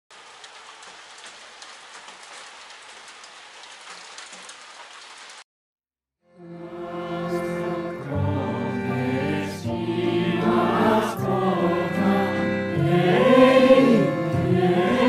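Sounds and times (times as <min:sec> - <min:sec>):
raindrop ticks: 0:00.1 - 0:05.4
steady rain: 0:00.1 - 0:05.4.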